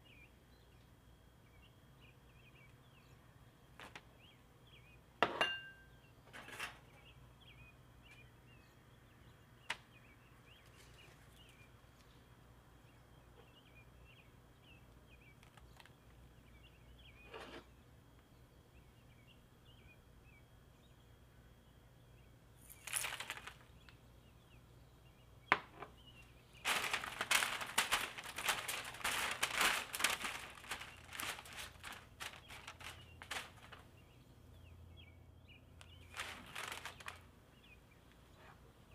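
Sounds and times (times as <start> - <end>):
parchment paper crinkling: 22.6 - 24.0, 26.6 - 34.0, 35.8 - 37.3.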